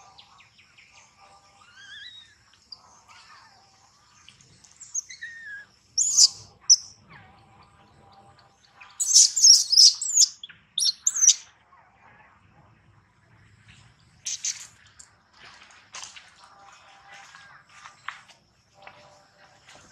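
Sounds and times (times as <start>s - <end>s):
high-pitched animal chirps and squeals: 1.6s - 2.4s, 5.0s - 6.9s, 9.0s - 11.4s
faint whistling bird calls: 4.9s - 6.9s, 9.0s - 11.4s.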